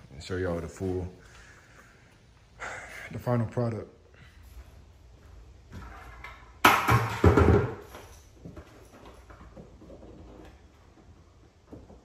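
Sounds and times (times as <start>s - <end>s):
faint knocks and handling noises: 4.5s - 12.0s.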